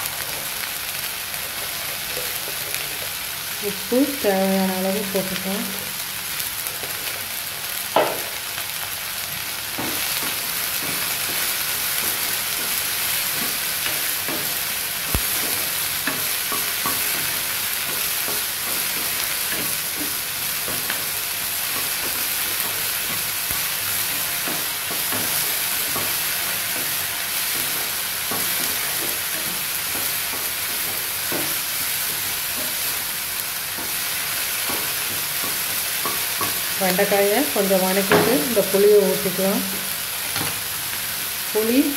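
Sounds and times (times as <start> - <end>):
okra sizzling in oil: 0.0 - 41.9.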